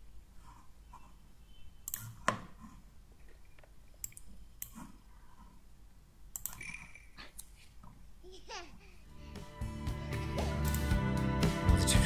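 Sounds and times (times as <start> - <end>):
computer mouse clicks: 1.8 - 5.4, 6.3 - 7.6.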